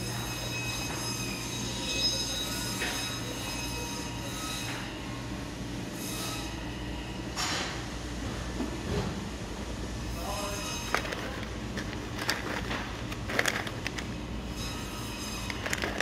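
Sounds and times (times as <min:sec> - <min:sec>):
low electrical hum: 0:04.8 - 0:16.0.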